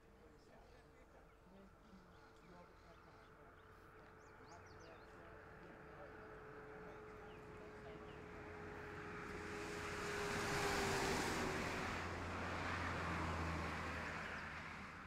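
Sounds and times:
car driving past: 0:06.4 - 0:15.0.

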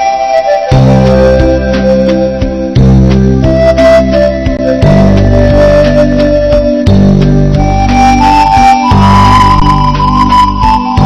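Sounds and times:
instrumental background music: 0:00.0 - 0:11.0.

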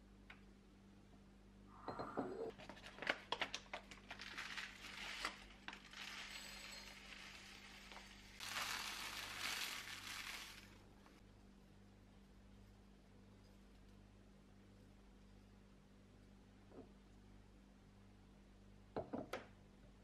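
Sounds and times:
plastic bag crinkling: 0:02.9 - 0:11.1
dry oats pouring into glass: 0:04.1 - 0:10.9.

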